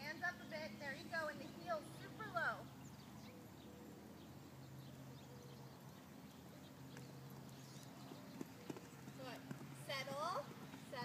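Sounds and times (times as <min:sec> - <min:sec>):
horse hoofbeats on sand: 0:07.9 - 0:11.0.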